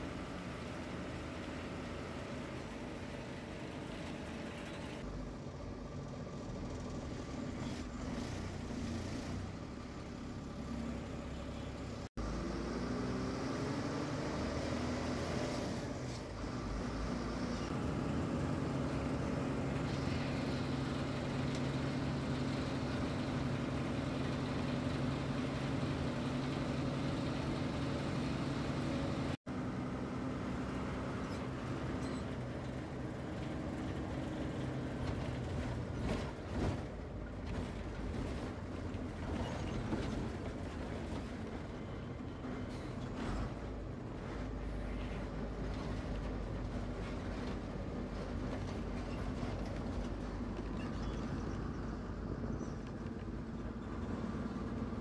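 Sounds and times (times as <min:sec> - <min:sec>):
diesel bus engine running: 0:00.0 - 0:55.0.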